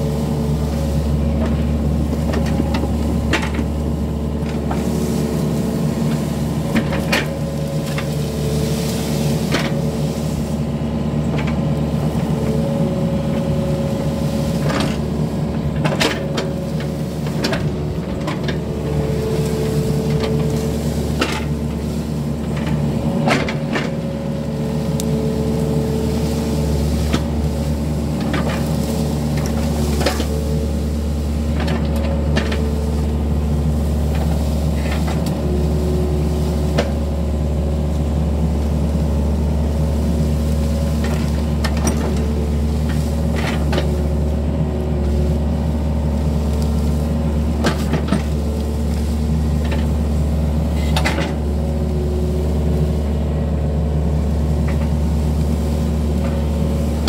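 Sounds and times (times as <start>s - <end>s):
excavator diesel engine running: 0.0s - 57.0s
hydraulic whine: 0.0s - 57.0s.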